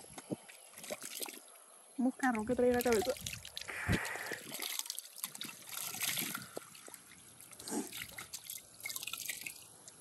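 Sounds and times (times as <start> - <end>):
water splashing on face: 2.6 - 9.6.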